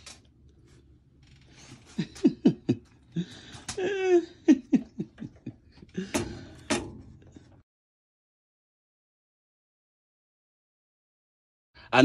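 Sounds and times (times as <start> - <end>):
person laughing: 1.8 - 6.5.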